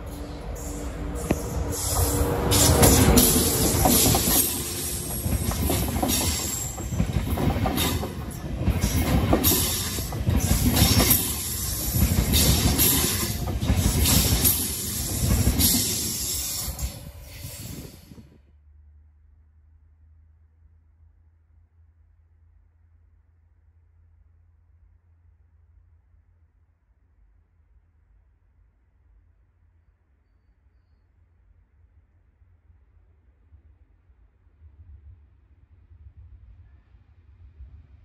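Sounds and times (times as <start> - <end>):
train wheels clattering: 0.0 - 18.3.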